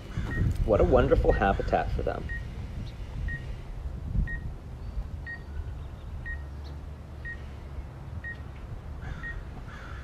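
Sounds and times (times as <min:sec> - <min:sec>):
high-pitched warning beeps: 0:00.3 - 0:01.6, 0:02.2 - 0:02.5, 0:03.2 - 0:03.5, 0:04.2 - 0:04.5, 0:05.2 - 0:05.5, 0:06.2 - 0:06.5, 0:07.2 - 0:07.5.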